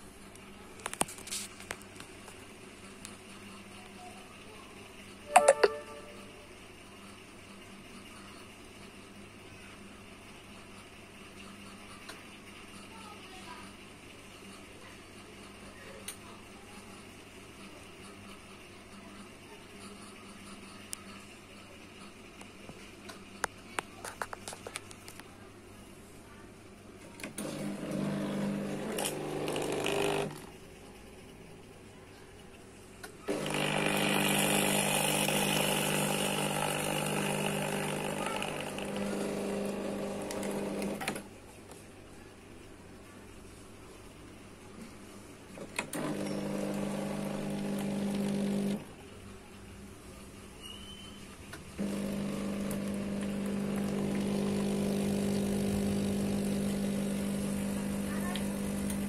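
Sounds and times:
espresso machine pump buzzing: 0:27.3 - 0:30.5, 0:33.3 - 0:41.2, 0:45.8 - 0:48.9, 0:51.8 - 0:59.0
espresso machine hiss: 0:33.3 - 0:40.8, 0:46.0 - 0:48.8, 0:51.8 - 0:59.0.

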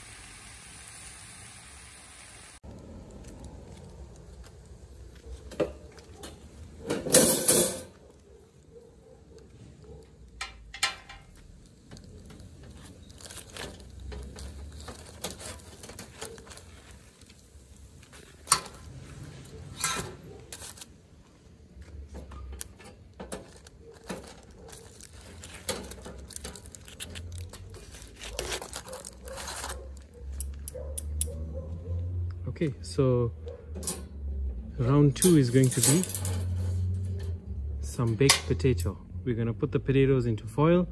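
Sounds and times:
foil crinkling and rustling: 0:11.3 - 0:21.2, 0:21.9 - 0:30.7.

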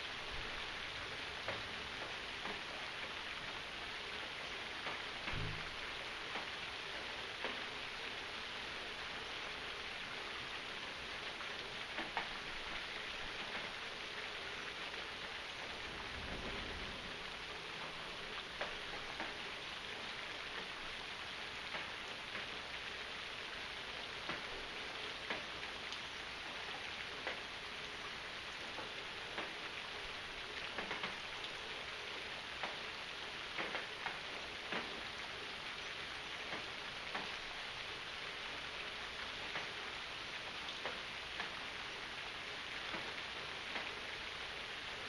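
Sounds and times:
sharper raindrops: 0:00.0 - 0:45.0
steady rain falling: 0:00.0 - 0:45.0
water drips: 0:17.1 - 0:44.6.

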